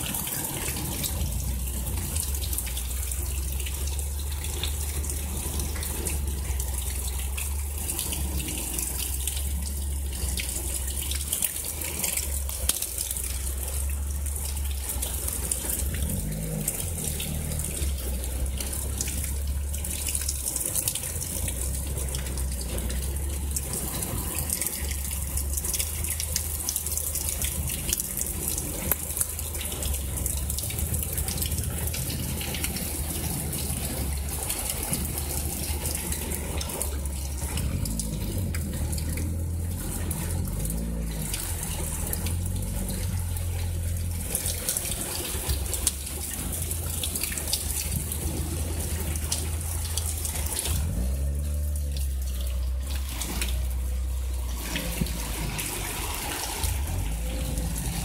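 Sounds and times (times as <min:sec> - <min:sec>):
drops ticking: 0:00.0 - 0:58.0
heavy rain falling: 0:00.0 - 0:58.0
water pouring and splashing: 0:00.0 - 0:58.0.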